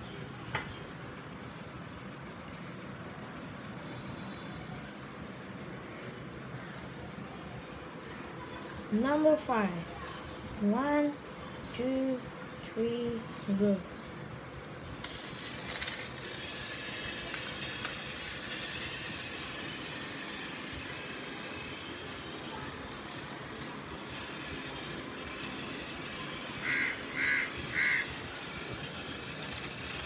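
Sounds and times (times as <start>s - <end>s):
toy train whirring: 14.9s - 30.0s
crow cawing: 26.6s - 28.1s.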